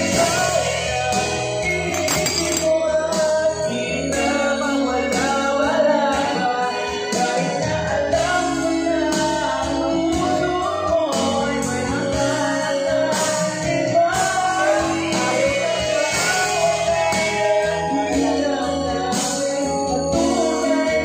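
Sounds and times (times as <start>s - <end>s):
instrumental backing music: 0.0s - 21.0s
person singing: 0.0s - 21.0s.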